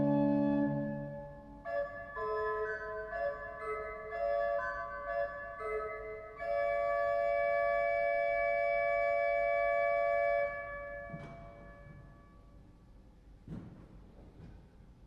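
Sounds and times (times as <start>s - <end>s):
pipe organ chords: 0.0s - 12.3s.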